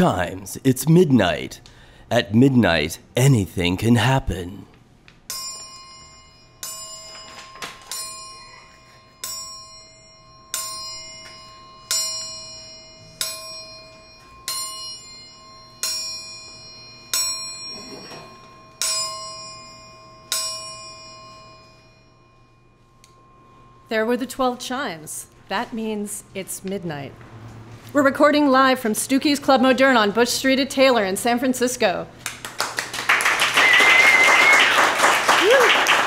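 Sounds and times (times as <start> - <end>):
clock bell striking: 5.3 - 23.8.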